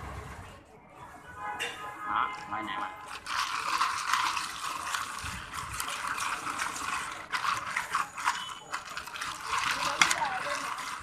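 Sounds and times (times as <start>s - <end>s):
coffee swishing: 2.2s - 11.0s
ice cubes clinking in cup: 2.3s - 11.0s.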